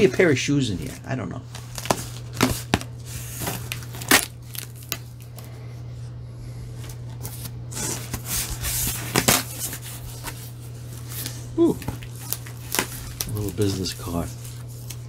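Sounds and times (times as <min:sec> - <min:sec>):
steady low hum: 0:00.0 - 0:15.0
cardboard scraping and rustling: 0:06.8 - 0:15.0.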